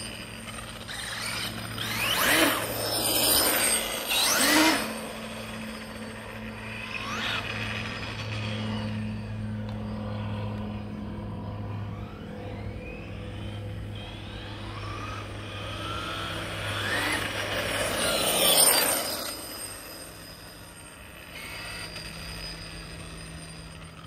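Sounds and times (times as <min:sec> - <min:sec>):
electric motor whine: 0:00.0 - 0:24.0.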